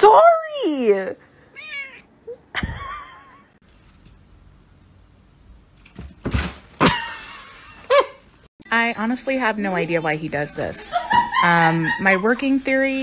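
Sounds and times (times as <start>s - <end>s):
kitten thumping cardboard box: 5.9s - 6.9s.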